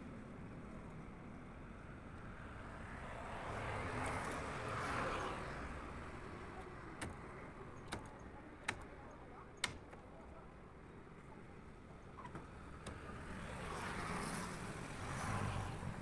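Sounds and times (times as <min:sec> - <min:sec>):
sharp clicks: 0:09.6 - 0:10.0
vehicle passing: 0:13.1 - 0:16.0.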